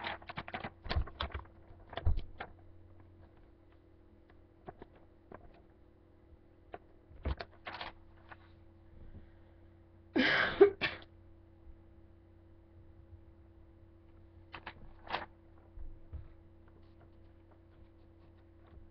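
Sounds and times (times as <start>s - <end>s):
paper and marker rustling: 0.0s - 2.6s, 6.7s - 8.6s, 14.5s - 18.9s
steady low hum: 0.0s - 18.9s
boy sneezing: 10.2s - 11.1s.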